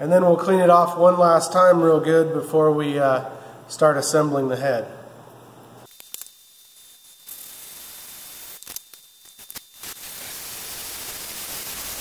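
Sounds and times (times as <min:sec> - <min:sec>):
drill lapping valve gritty noise: 0:05.9 - 0:12.0.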